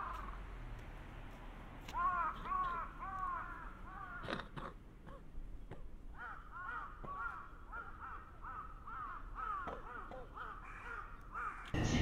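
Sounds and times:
crow cawing: 1.9 - 5.2, 6.1 - 12.0.

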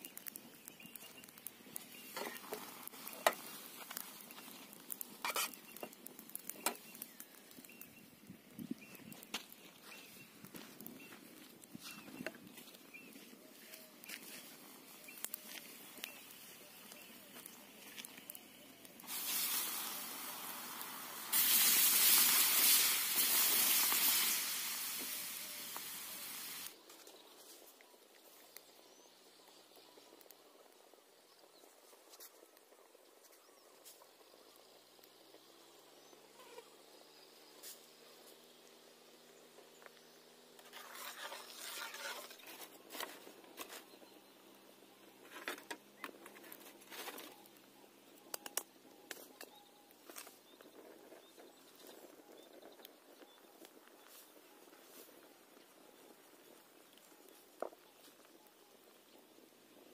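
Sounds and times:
water sizzling on hot metal: 0.0 - 7.9, 15.1 - 26.8, 39.7 - 44.0
sharp pops and crackles: 0.0 - 59.9.

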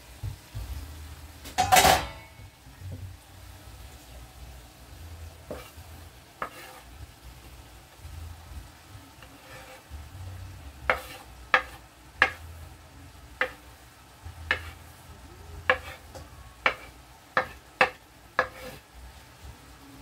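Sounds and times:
chicken sizzling in a pan: 0.0 - 20.0
spoon knocking on wooden board: 10.9 - 12.4.

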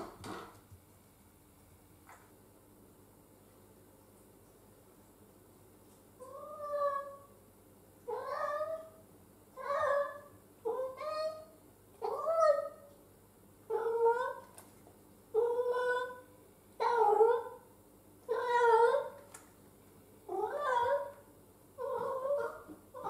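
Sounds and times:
cat meowing: 20.3 - 21.2.

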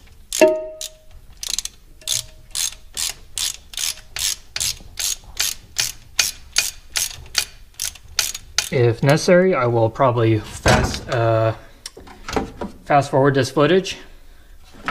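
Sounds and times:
socket ratchet clicking: 0.3 - 8.8.

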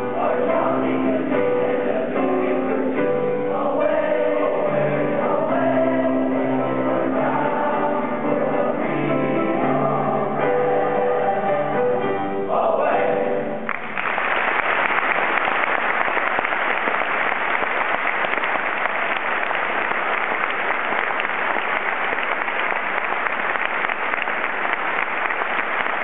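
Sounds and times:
boys' choir singing chord: 0.0 - 13.7
audience applause: 13.7 - 26.0.

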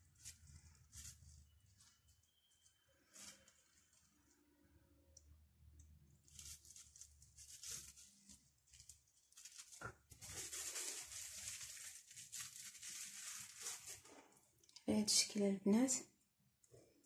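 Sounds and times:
plastic film crinkling: 0.0 - 4.4, 5.8 - 14.8.

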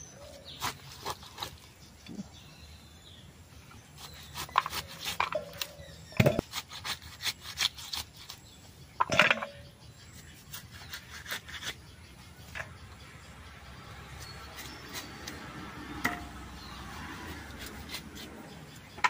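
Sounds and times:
blade slicing fruit: 0.5 - 2.2, 3.8 - 8.6, 14.1 - 18.9.

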